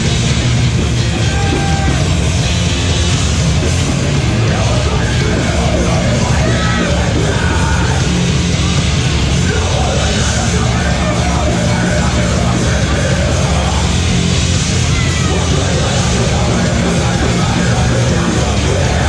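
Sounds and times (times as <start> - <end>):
bass guitar: 0.0 - 19.0
distorted guitars: 0.0 - 19.0
pounding drums: 0.0 - 19.0
vocalist screaming: 1.1 - 2.2, 4.8 - 8.1.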